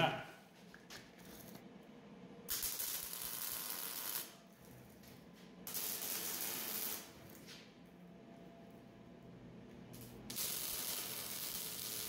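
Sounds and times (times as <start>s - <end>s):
arc welding hiss: 2.5s - 4.4s, 5.7s - 7.2s, 10.0s - 12.0s.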